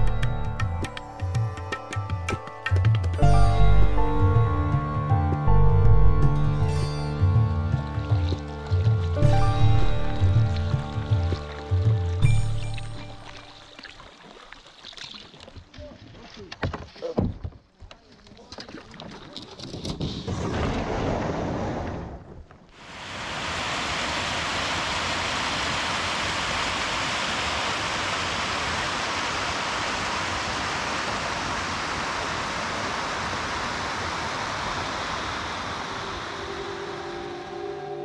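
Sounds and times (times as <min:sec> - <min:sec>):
stream rushing over rocks: 0:22.8 - 0:37.2.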